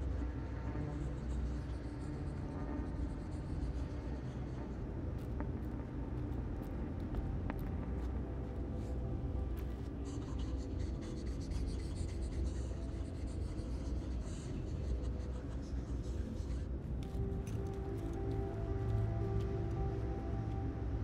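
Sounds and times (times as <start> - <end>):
droning film score: 0.0 - 21.0.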